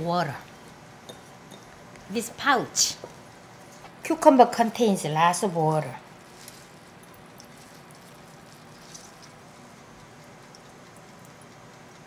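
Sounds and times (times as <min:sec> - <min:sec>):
cloth pouch wringing: 0:06.2 - 0:12.0
water dripping into glass bowl: 0:07.0 - 0:12.0.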